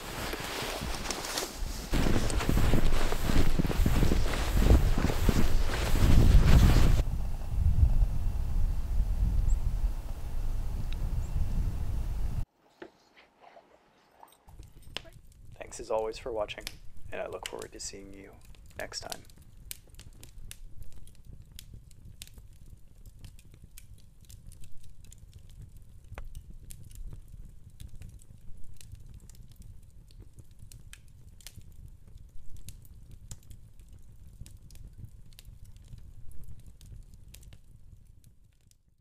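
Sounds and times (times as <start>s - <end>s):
wood fire crackling: 0.0s - 9.8s, 14.5s - 39.0s
low fire rumble: 0.0s - 12.5s, 14.6s - 38.8s.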